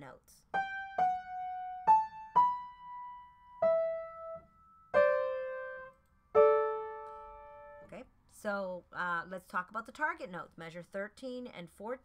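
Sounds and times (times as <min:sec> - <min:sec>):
piano notes ringing: 0:00.5 - 0:07.9.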